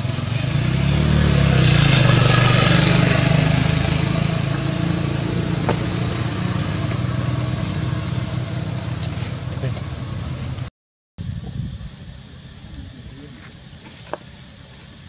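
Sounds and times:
engine humming: 0.0 - 10.7.

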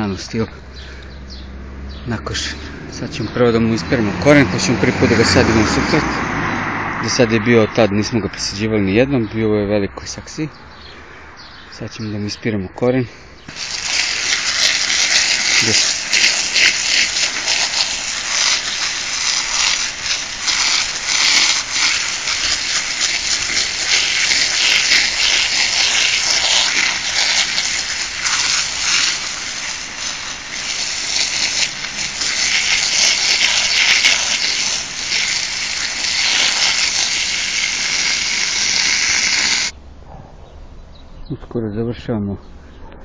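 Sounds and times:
hose water jet hissing on soil: 2.2 - 7.4, 13.5 - 39.8.

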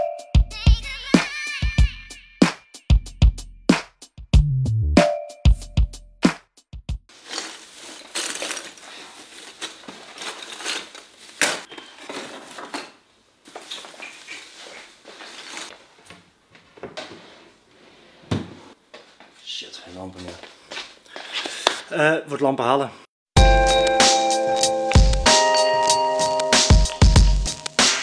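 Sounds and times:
plastic bag crinkling: 7.1 - 12.8, 13.5 - 15.7.

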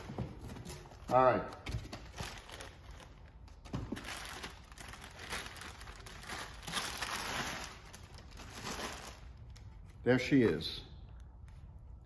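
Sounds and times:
plastic bag crinkling: 2.1 - 9.7.

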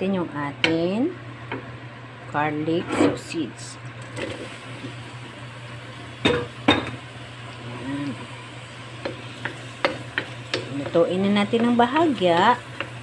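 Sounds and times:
sausage sizzling in a pan: 4.0 - 13.0
wooden spoon knocking on pan: 9.0 - 12.2.

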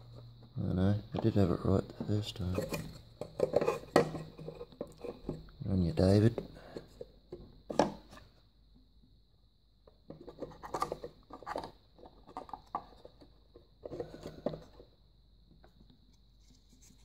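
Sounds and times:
wood clattering and scraping: 1.2 - 5.5, 10.1 - 14.8.

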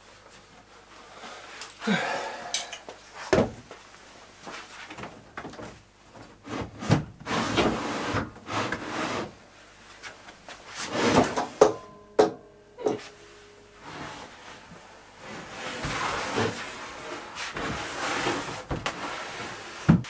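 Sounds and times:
ringing clank: 11.6 - 14.7
wood scraping on wood: 13.8 - 20.0.

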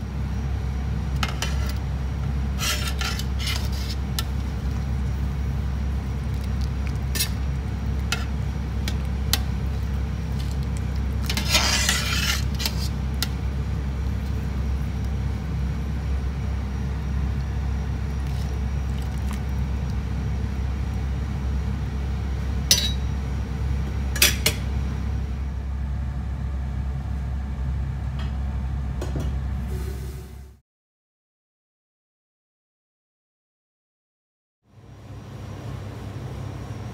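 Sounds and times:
broth bubbling in a pot: 0.1 - 23.0
metal ladle clinking against pot: 22.7 - 23.0.

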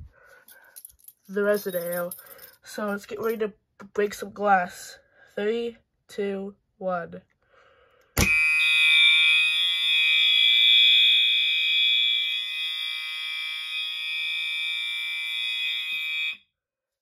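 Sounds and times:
fire alarm high-pitched tone: 8.2 - 16.6.

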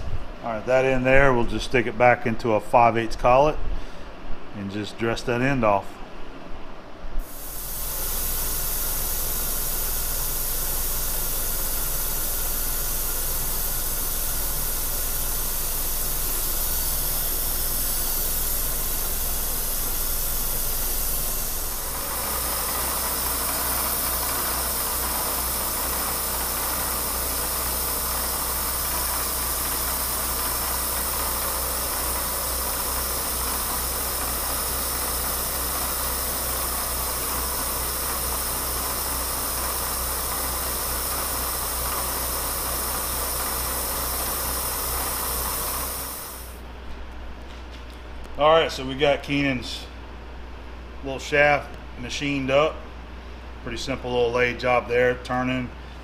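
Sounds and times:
milling machine cutting metal: 7.3 - 46.6.

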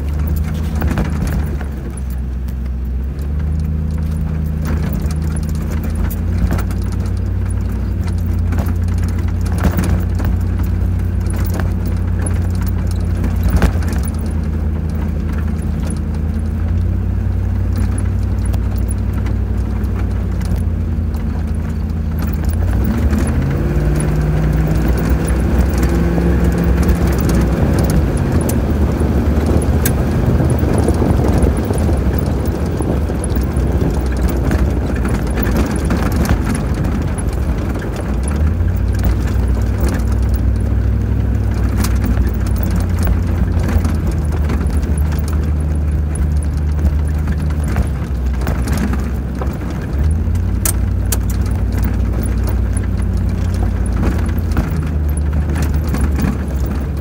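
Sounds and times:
engine running inside cabin: 0.0 - 57.0
knocks and rattles: 0.0 - 57.0.

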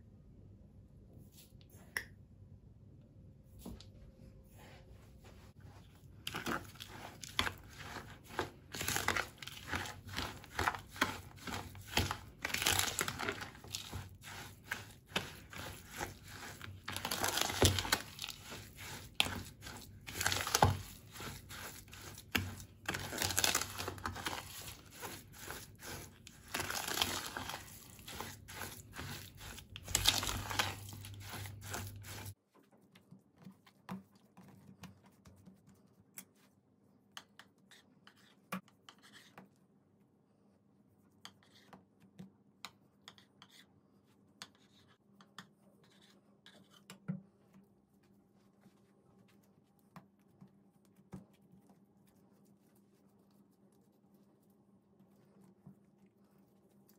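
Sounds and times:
metal spoon scraping plastic bowl: 6.3 - 32.4.

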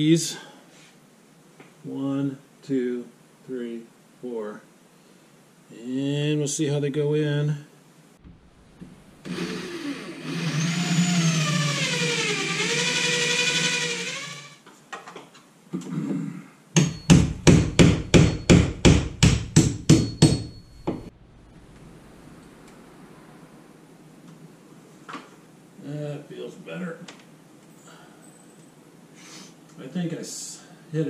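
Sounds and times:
power tool motor running: 9.2 - 14.6
hammer striking ceiling: 16.8 - 21.1.

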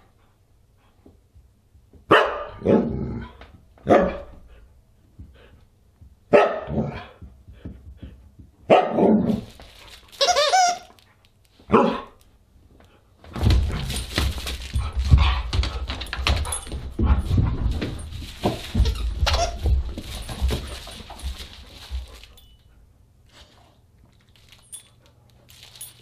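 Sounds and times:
dog barking and yipping: 2.1 - 2.8, 3.8 - 4.4, 8.7 - 9.1, 11.7 - 12.2
dog scuffling with toys: 9.3 - 11.2, 12.7 - 26.0.

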